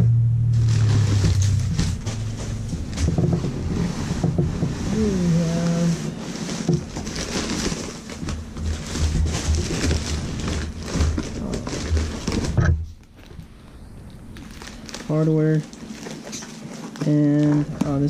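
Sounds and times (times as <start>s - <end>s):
packing paper crinkling: 0.6s - 18.0s
cardboard box bumps: 6.0s - 12.7s.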